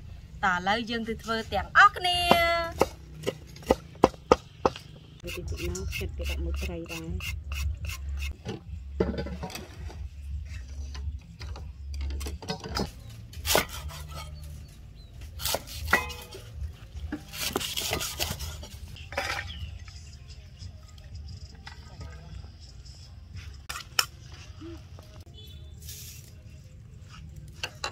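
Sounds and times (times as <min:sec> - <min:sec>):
steel bowls clinking: 0:15.9 - 0:16.4.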